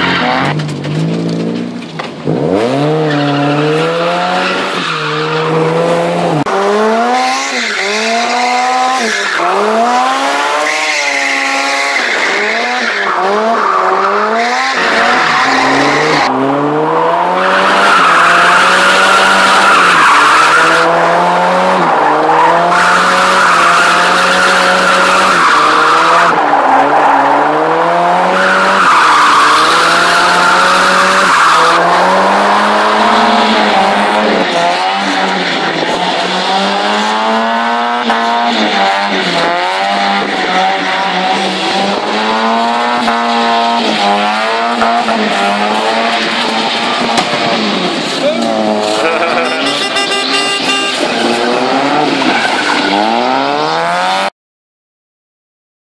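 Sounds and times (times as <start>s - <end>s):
car engine revving: 0.0s - 54.3s.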